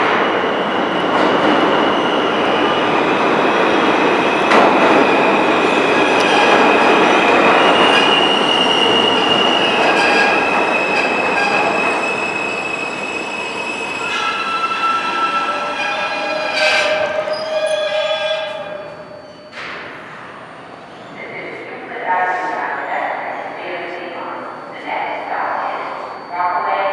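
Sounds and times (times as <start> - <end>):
train wheel and rail noise: 0.0 - 26.9
high thin wheel squeal: 7.9 - 19.5.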